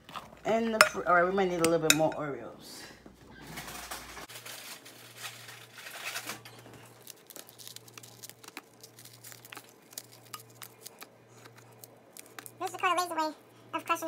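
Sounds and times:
plastic packaging crinkling: 3.5s - 12.8s.

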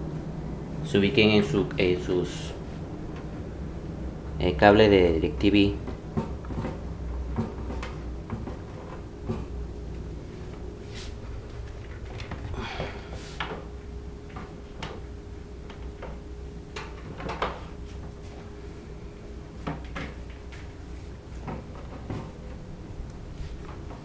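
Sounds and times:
steady low hum: 0.0s - 24.0s
cables knocking and rustling: 5.7s - 18.5s, 19.4s - 24.0s.

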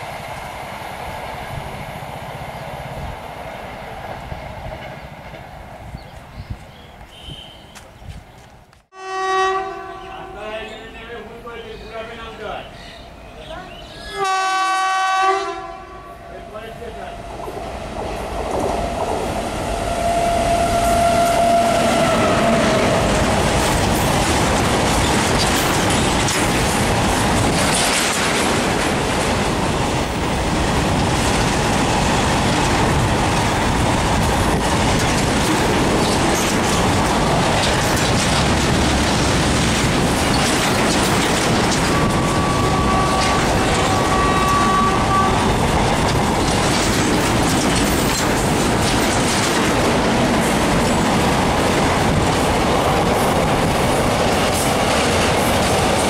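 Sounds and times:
train wheels rushing on rails: 0.0s - 8.9s, 16.3s - 56.0s
train horn: 8.9s - 10.4s, 14.1s - 17.2s, 19.8s - 23.0s, 41.9s - 45.5s.

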